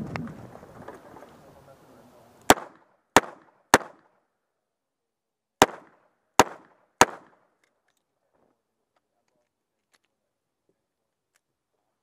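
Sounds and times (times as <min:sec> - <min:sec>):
pistol shots: 0:02.5 - 0:04.1, 0:05.6 - 0:07.5.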